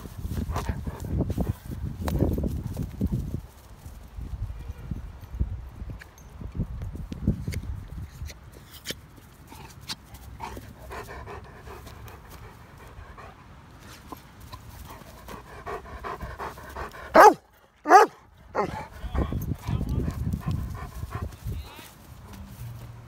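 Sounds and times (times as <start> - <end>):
dog panting: 0.0 - 1.6, 9.4 - 21.5.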